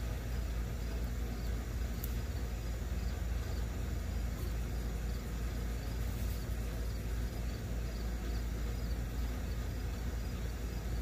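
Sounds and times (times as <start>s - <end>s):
crickets chirping: 0.0s - 11.0s
low rumbling background noise: 0.0s - 11.0s.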